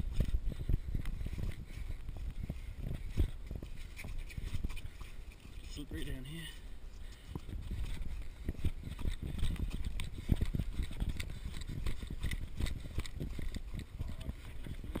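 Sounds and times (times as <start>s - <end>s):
running footsteps on dirt trail: 0.0s - 15.0s.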